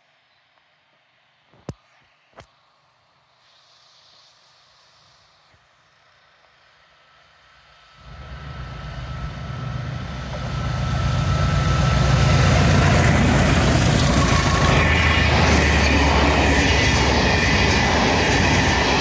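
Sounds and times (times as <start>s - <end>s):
rail and wheel noise: 0.0s - 19.0s
diesel locomotive engines pulsing: 7.1s - 19.0s.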